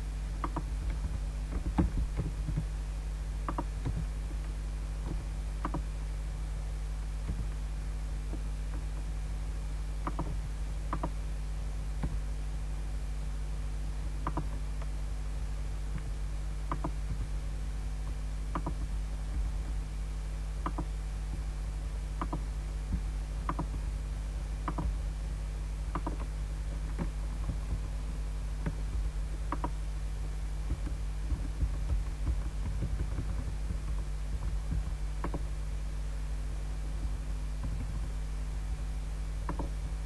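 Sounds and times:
electrical hum: 0:00.0 - 0:40.0
computer mouse clicks: 0:00.4 - 0:02.7, 0:03.4 - 0:06.0, 0:10.0 - 0:11.2, 0:14.2 - 0:14.9, 0:16.7 - 0:17.3, 0:18.0 - 0:18.9, 0:20.6 - 0:20.9, 0:22.2 - 0:23.8, 0:24.6 - 0:25.0, 0:25.9 - 0:27.9, 0:28.6 - 0:29.8, 0:30.7 - 0:35.5, 0:39.4 - 0:39.9.

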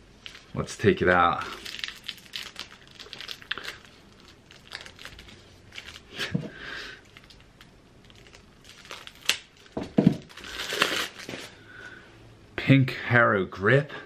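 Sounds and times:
plastic wrapping crinkling and tearing: 0:00.1 - 0:06.4, 0:07.0 - 0:11.6.

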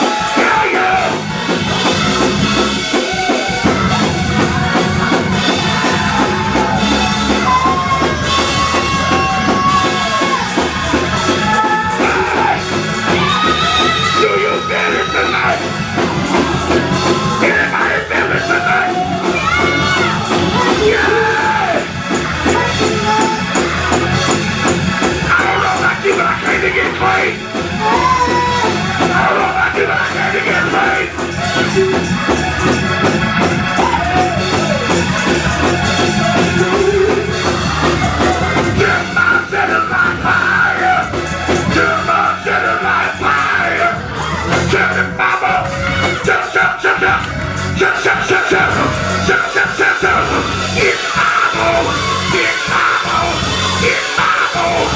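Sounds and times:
man singing and shouting: 0:00.0 - 0:02.2, 0:07.6 - 0:23.6, 0:25.2 - 0:32.3, 0:36.2 - 0:54.9
drum kit playing: 0:00.0 - 0:54.9
keyboard playing: 0:00.0 - 0:54.9
choir singing: 0:33.8 - 0:54.9.

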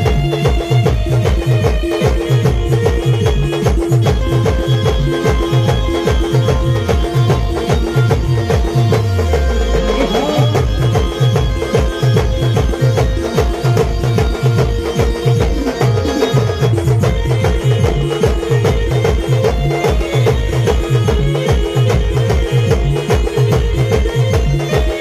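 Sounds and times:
big drums beating: 0:00.0 - 0:25.0
held melody line: 0:00.0 - 0:25.0.

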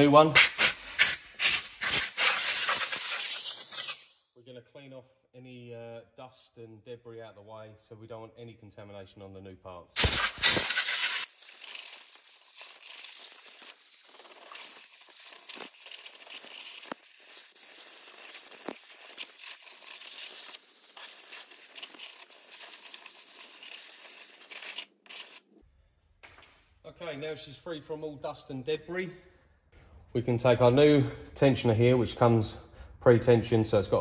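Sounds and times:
compressed air blow gun hissing: 0:00.4 - 0:04.0, 0:10.0 - 0:25.4.

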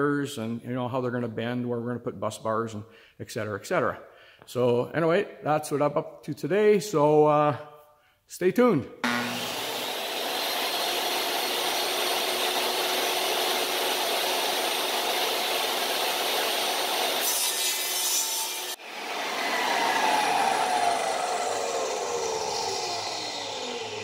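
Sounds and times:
saw blade whine winding down: 0:09.0 - 0:24.0
table saw cutting plywood: 0:09.0 - 0:24.0.

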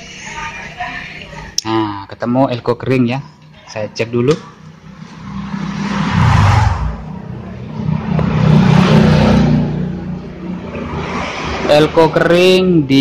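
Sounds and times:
vehicle engine passing by: 0:04.5 - 0:12.1.

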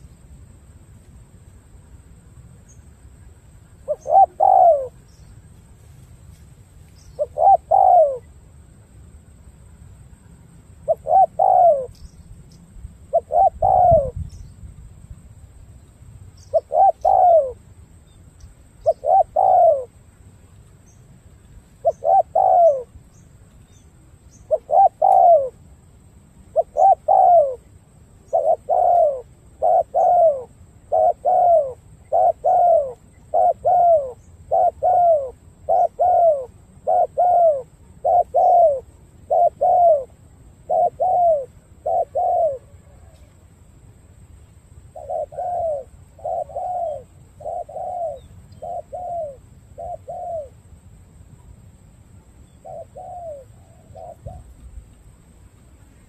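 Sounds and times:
dove cooing: 0:03.8 - 0:05.1, 0:07.2 - 0:08.3, 0:10.8 - 0:12.0, 0:13.1 - 0:14.2, 0:16.5 - 0:17.6, 0:18.8 - 0:20.0, 0:21.8 - 0:23.0, 0:24.4 - 0:25.6, 0:26.5 - 0:43.3, 0:44.9 - 0:50.6, 0:52.6 - 0:54.8.

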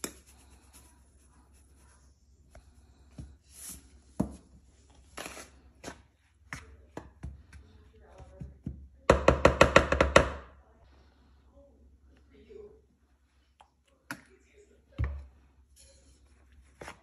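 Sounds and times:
wooden spoon mixing flour in bowl: 0:00.0 - 0:09.1, 0:14.9 - 0:17.0.

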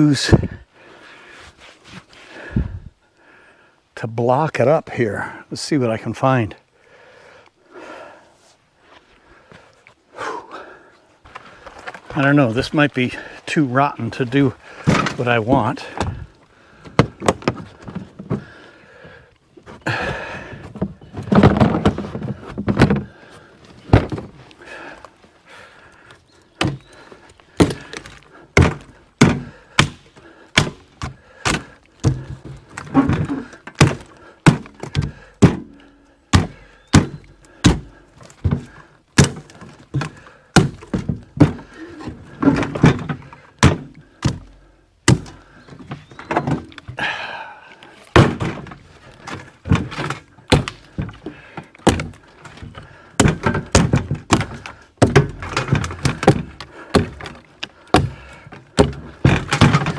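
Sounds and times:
wooden pole thunking: 0:14.7 - 0:16.3, 0:16.9 - 0:18.5, 0:19.6 - 0:23.2, 0:23.8 - 0:24.4, 0:26.6 - 0:47.2, 0:48.0 - 0:59.9.

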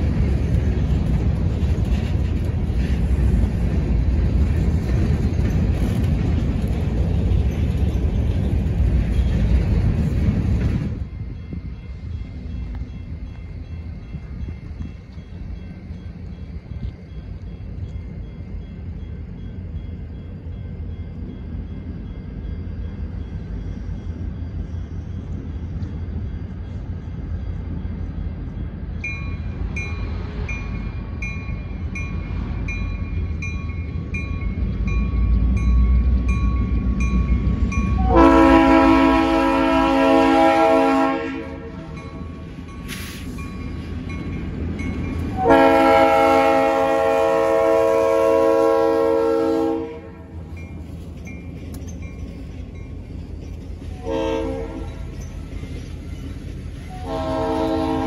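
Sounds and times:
locomotive engine rumble: 0:00.0 - 0:58.0
train horn blasts: 0:38.0 - 0:42.2, 0:45.3 - 0:50.4, 0:53.9 - 0:55.1, 0:56.9 - 0:58.0.

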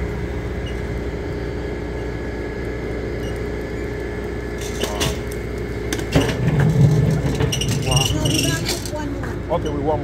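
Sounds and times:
mechanical hum with low rumble: 0:00.0 - 0:10.0
shopping cart rattling: 0:06.8 - 0:09.1.

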